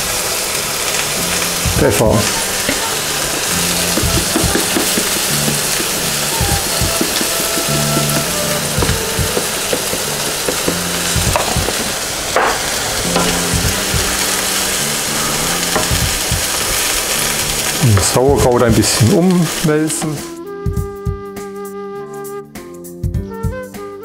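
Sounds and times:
sauerkraut sizzling in a pot: 0.0 - 20.3
background music with bass line: 3.4 - 11.7, 13.0 - 16.5, 20.2 - 24.0.

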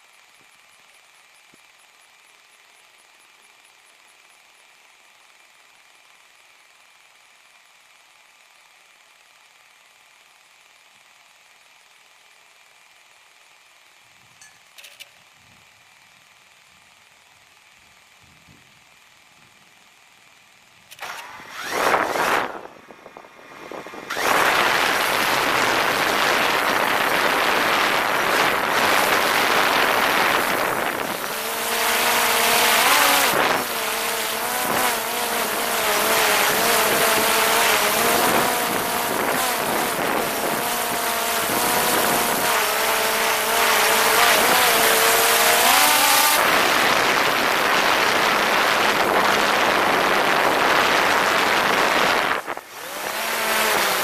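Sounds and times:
drone motor whine: 17.9 - 54.0
drone propeller wash rushing: 21.0 - 54.0.

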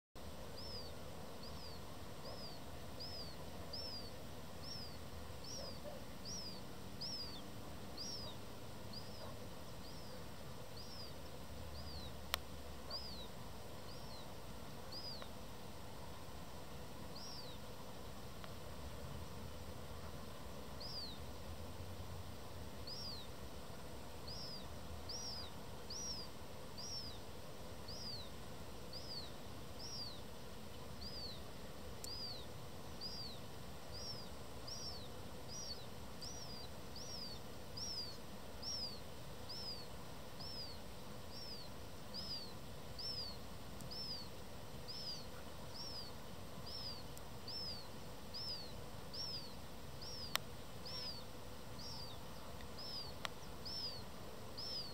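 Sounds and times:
young gull begging calls: 1.5 - 7.4, 8.0 - 10.2, 34.0 - 39.8, 40.4 - 44.3, 44.9 - 46.1, 46.7 - 51.2, 51.8 - 52.2, 52.8 - 54.0, 54.6 - 54.9.

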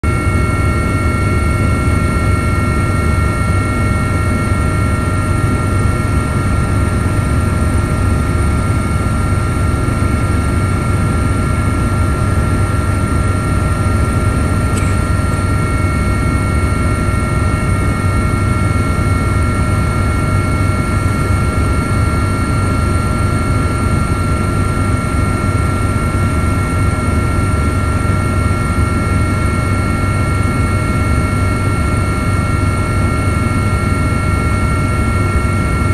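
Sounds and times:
helicopter rotor and engine rumble: 0.0 - 35.9
high-pitched whines: 13.2 - 21.7.

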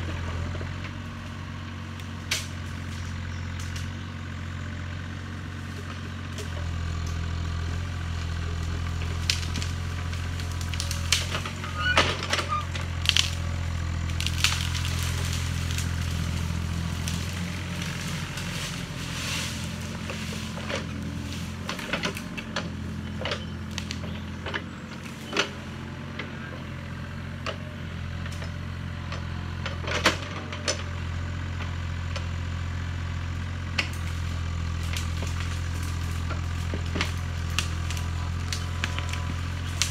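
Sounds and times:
excavator diesel engine running: 0.0 - 39.9
branches cracking and snapping: 0.7 - 4.0, 5.7 - 25.7, 33.6 - 39.9.

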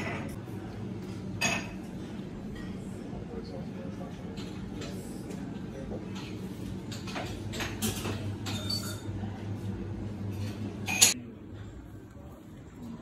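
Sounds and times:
crockery and cutlery clinking: 1.4 - 2.9, 4.1 - 9.4, 10.3 - 11.2.

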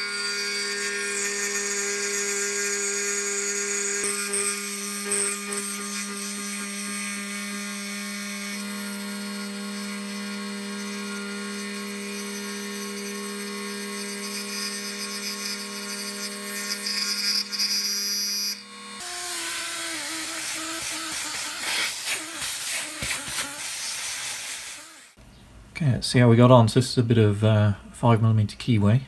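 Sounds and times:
milling spindle whine: 0.0 - 23.9
end mill cutting metal: 0.0 - 25.2.

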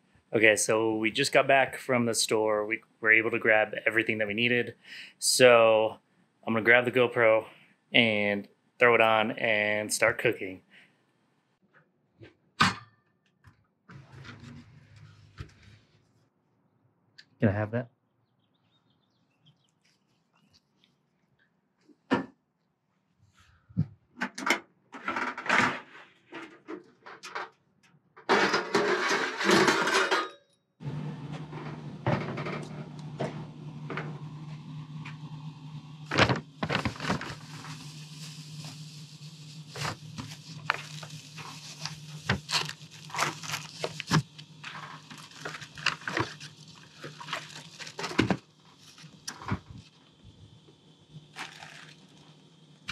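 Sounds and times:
burst of noise: 30.8 - 50.5
steady low hum: 30.8 - 52.9
paper bag rustling: 36.0 - 49.8, 51.3 - 52.2.

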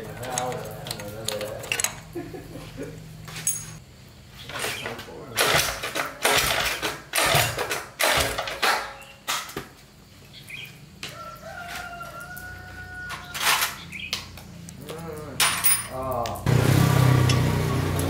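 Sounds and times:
rooster crowing: 11.0 - 13.8.

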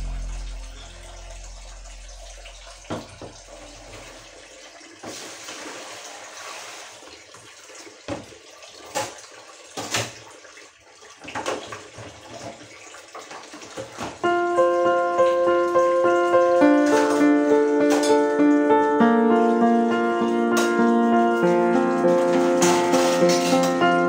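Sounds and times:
water splashing: 0.0 - 14.2
tap running into sink: 2.5 - 4.2, 8.1 - 10.2
dishes clattering: 22.0 - 24.0.

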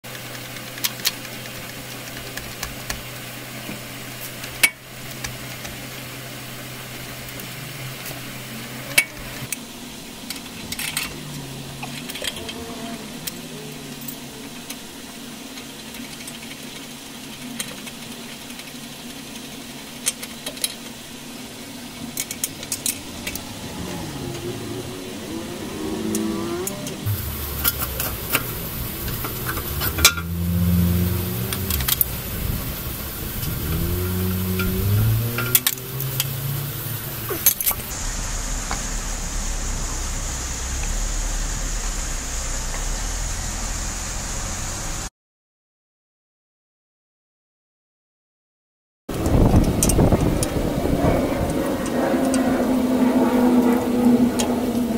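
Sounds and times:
low rumble with hiss: 0.1 - 45.1
steady low hum: 21.0 - 45.1.

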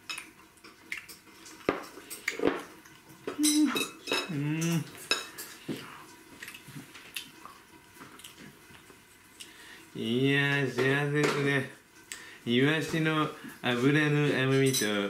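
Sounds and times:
person humming mmm while chewing: 3.3 - 5.0.

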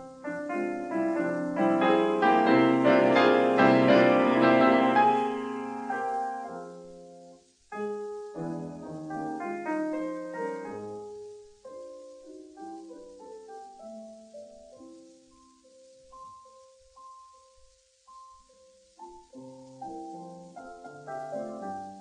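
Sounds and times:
piano music: 0.0 - 22.0.

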